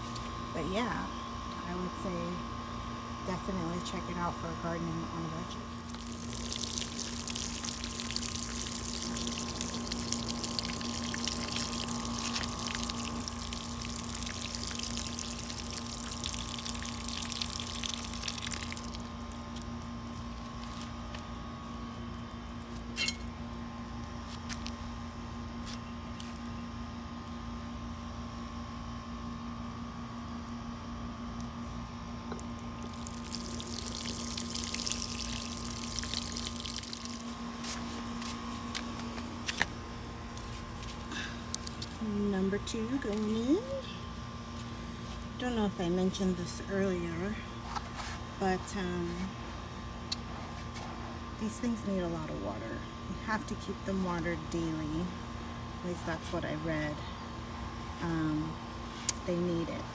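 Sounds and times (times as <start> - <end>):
air conditioner hum: 0.0 - 59.9
watering can spraying onto soil: 5.8 - 19.0.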